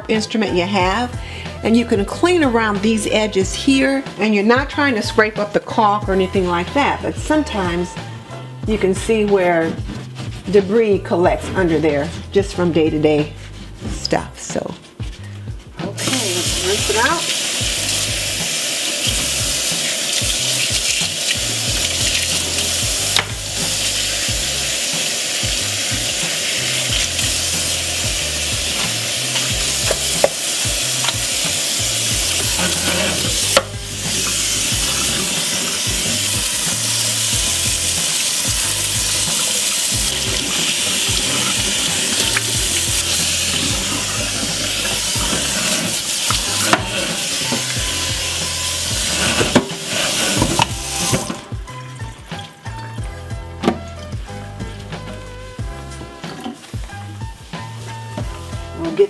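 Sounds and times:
gloved hands scrubbing sink: 6.0 - 59.0
faucet running into steel sink: 16.0 - 54.3.

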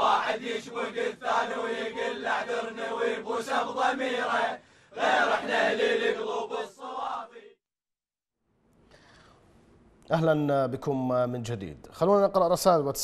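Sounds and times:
group of young men chanting: 0.0 - 7.6.

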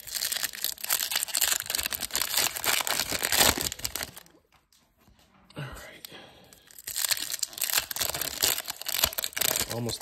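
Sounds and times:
foil wrapper tearing and crinkling: 0.0 - 4.3, 6.7 - 10.0.

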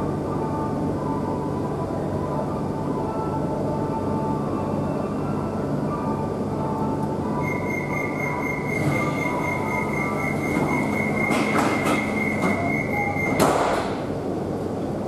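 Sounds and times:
subway car rumble: 0.0 - 15.0
high-pitched squeal: 7.4 - 13.4.

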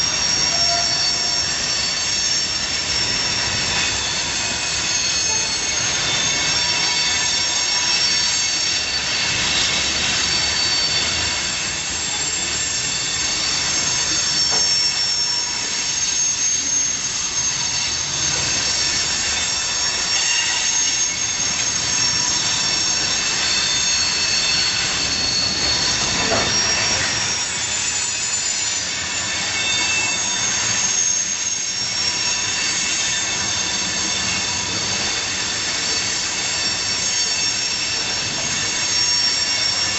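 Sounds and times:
rumble of rolling train cars: 0.0 - 39.9
train wheels screeching on rails: 0.0 - 39.9.

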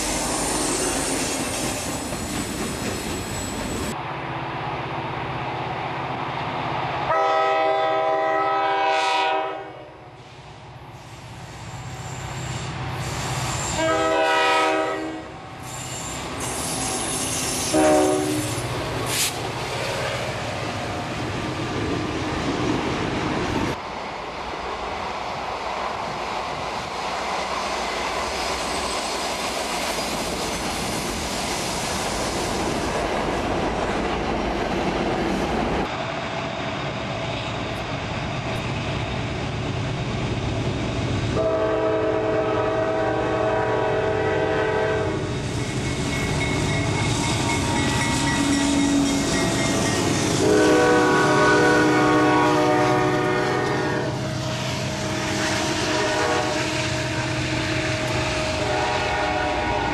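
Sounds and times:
train wheels clacking over rail joints: 0.6 - 4.0, 45.6 - 50.6
locomotive air horn blasts: 7.1 - 10.1, 13.6 - 15.4, 16.5 - 18.7, 41.4 - 45.2, 50.3 - 59.9.

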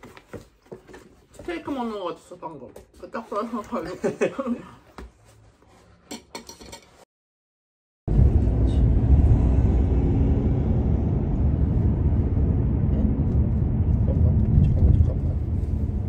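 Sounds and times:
car road and engine rumble: 8.1 - 16.0.

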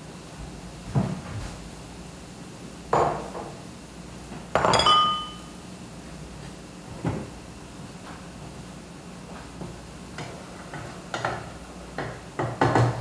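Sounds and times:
dishes clattering: 4.6 - 5.4.

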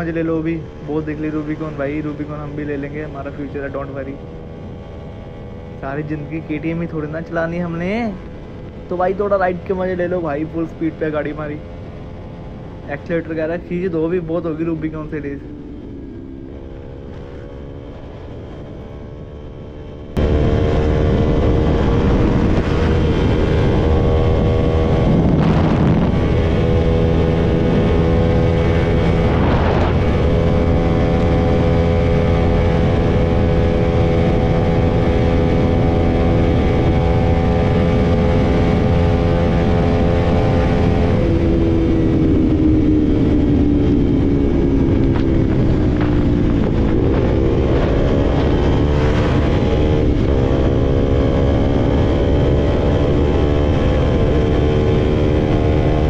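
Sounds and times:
wind rushing over microphone: 0.0 - 56.0
motorcycle engine running hard: 15.3 - 56.0.

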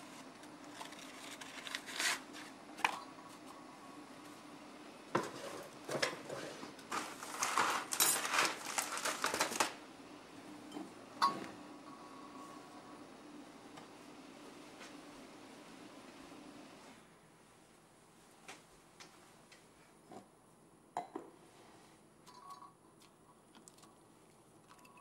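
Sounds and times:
paper filter rustling: 0.1 - 2.6, 6.9 - 9.8.

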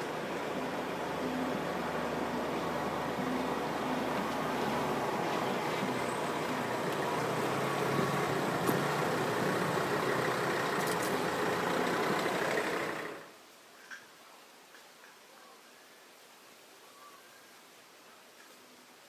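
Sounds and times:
engine running: 0.0 - 13.3.

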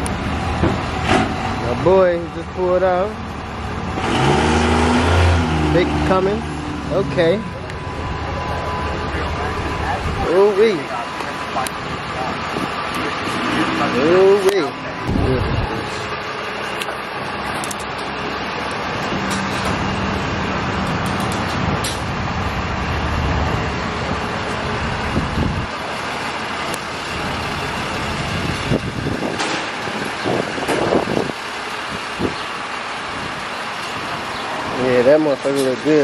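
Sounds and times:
vehicle noise: 0.0 - 36.0
low rumble: 14.9 - 16.2.

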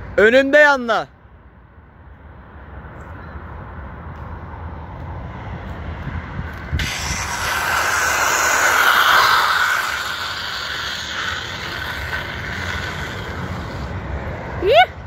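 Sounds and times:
bicycle tyre skidding on asphalt: 6.6 - 14.4.

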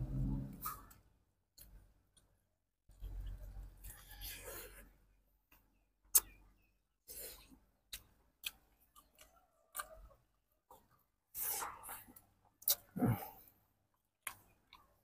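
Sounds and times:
person chewing chicken on bone: 6.1 - 15.0.

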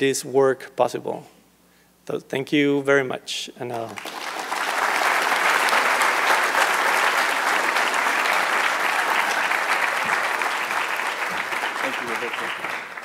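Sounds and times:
audience applauding: 3.9 - 13.0.

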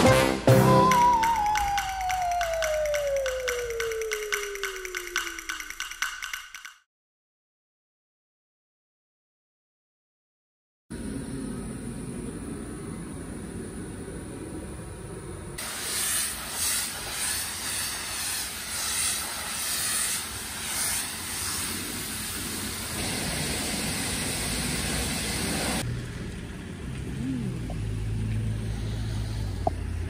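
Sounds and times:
pressure washer spraying: 15.6 - 25.8.

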